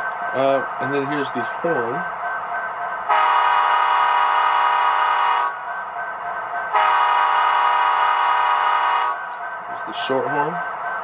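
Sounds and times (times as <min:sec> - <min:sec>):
model train horn blasts: 0:03.1 - 0:05.5, 0:06.8 - 0:09.2.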